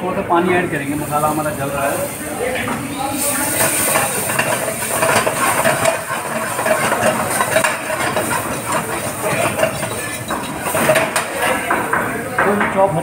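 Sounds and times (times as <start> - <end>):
masala sizzling in a pan: 0.6 - 12.0
steel ladle stirring: 3.0 - 11.7.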